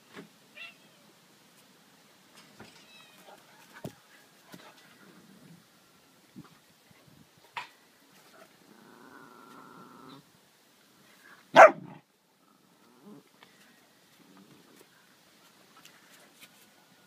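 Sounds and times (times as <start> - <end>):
dog growling: 8.7 - 10.2
dog barking: 11.5 - 12.0.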